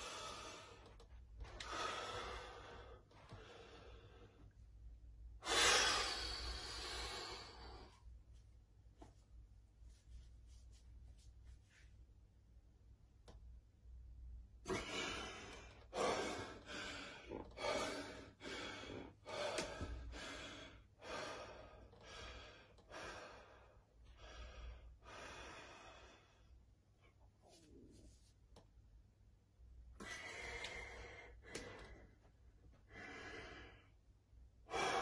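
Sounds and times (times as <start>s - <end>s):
person breathing heavily: 0.0s - 4.6s, 5.4s - 8.1s, 14.6s - 26.6s, 29.9s - 34.0s, 34.6s - 35.0s.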